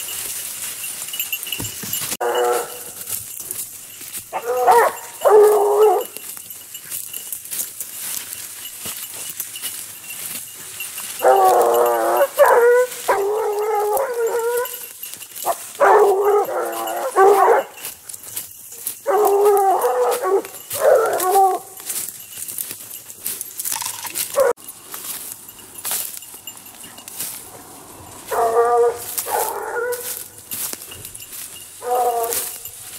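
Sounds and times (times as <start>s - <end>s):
hounds baying: 0.0s - 32.9s.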